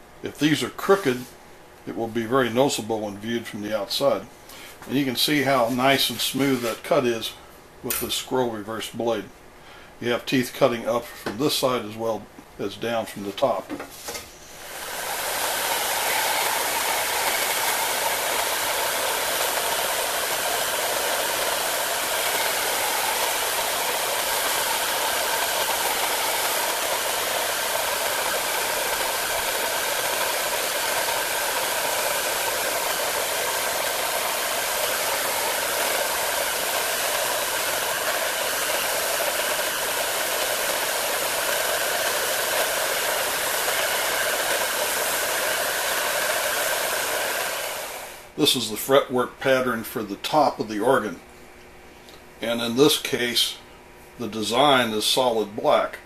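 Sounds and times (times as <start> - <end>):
heat gun blowing hot air: 14.5 - 48.4.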